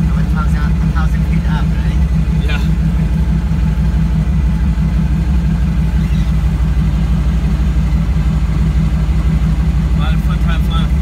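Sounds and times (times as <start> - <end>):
plane engine and propeller throbbing: 0.0 - 11.0.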